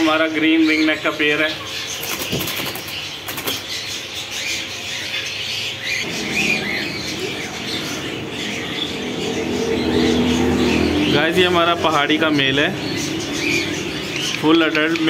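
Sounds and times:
parakeet wings flapping in cage: 0:02.0 - 0:03.7.

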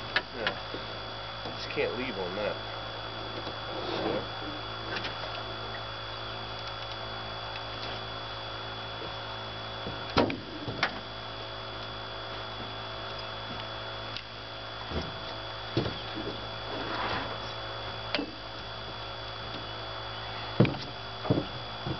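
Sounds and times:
steady electrical hum: 0:00.0 - 0:21.9
knocks on metal boat deck: 0:20.6 - 0:21.9.

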